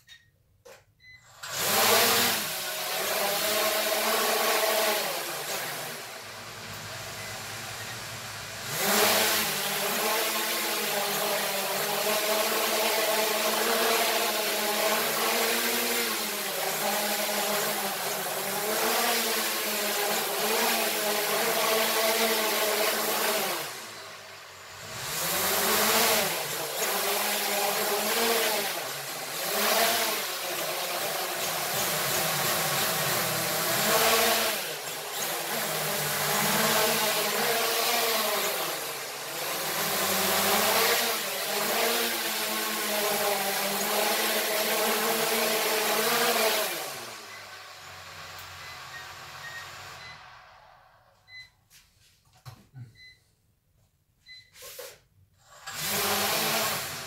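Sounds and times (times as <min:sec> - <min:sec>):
toy drone propellers whirring: 0:01.4 - 0:50.2, 0:55.5 - 0:57.0.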